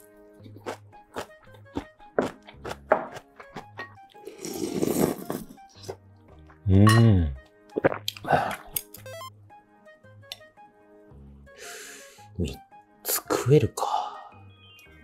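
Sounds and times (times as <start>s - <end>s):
background music: 0.0s - 15.0s
slurping soup: 4.2s - 6.0s.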